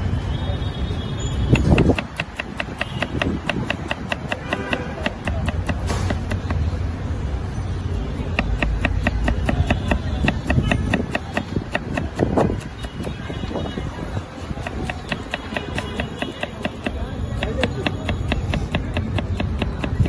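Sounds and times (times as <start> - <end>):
knife chopping on wooden board: 1.5 - 6.7, 8.3 - 13.2, 14.5 - 20.0.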